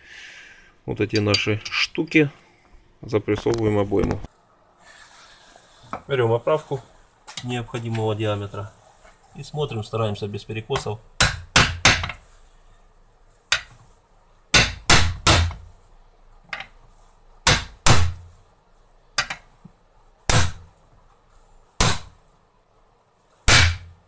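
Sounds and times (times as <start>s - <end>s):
hammer striking metal: 21.8s - 22.1s, 23.5s - 23.9s.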